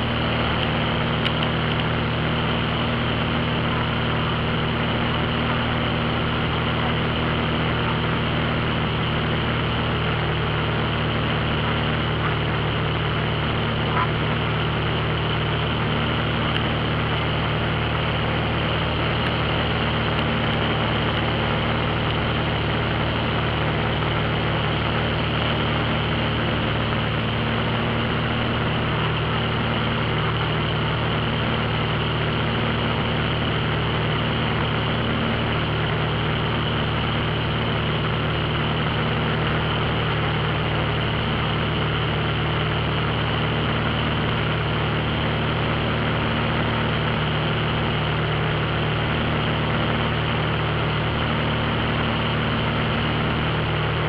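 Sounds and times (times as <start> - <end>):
light aircraft engine drone: 0.0 - 54.0.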